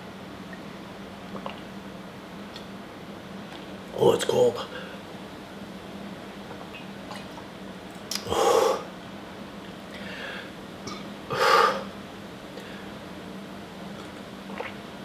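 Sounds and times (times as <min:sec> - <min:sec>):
faint steady hum: 0:00.0 - 0:15.0
man gasping for breath: 0:10.0 - 0:10.5.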